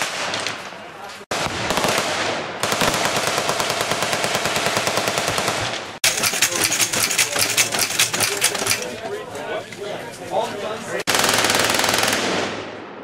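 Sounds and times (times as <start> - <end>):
automatic gunfire bursts: 1.7 - 8.9, 11.1 - 12.4.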